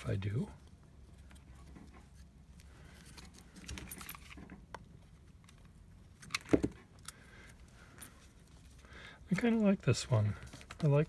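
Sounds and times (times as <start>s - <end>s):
cardboard and paper rustling: 1.2s - 4.6s, 8.3s - 11.0s.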